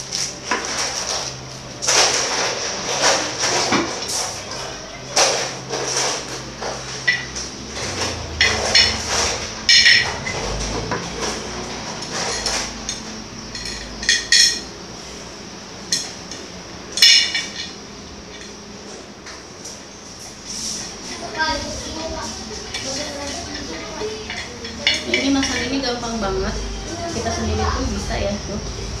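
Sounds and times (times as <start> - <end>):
handling noise: 0.0 - 14.6.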